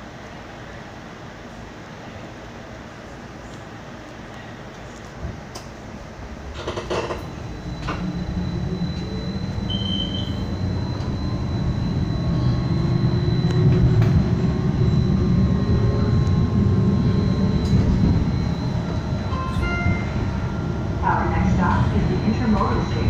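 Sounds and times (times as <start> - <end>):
streetcar rumbling on track: 0.0 - 23.0
faint high whine: 5.5 - 23.0.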